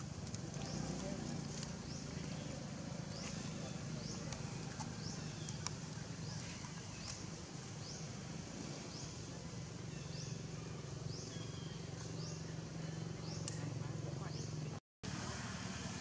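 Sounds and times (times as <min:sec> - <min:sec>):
faint clicks: 0:13.4 - 0:13.7.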